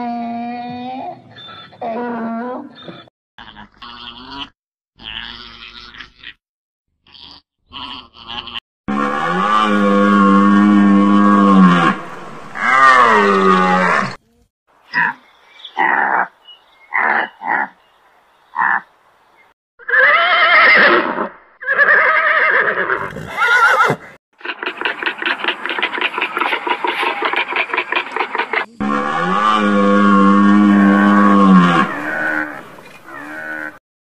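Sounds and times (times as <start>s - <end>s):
animal calls: 21.6s - 33.8s.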